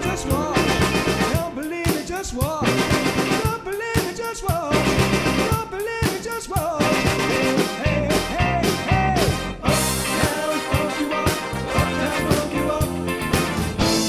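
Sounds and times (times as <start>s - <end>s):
electric guitar: 0.0s - 3.5s, 9.2s - 14.0s
sliding melody line: 0.0s - 3.6s, 6.8s - 14.0s
bass guitar: 0.0s - 14.0s
drum kit: 0.0s - 14.0s.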